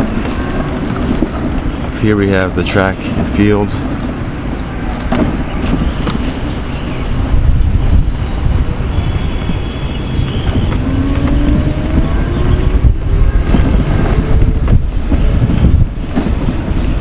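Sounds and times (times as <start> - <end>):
wind buffeting microphone: 0.0 - 17.0
moped engine whine: 4.5 - 16.0.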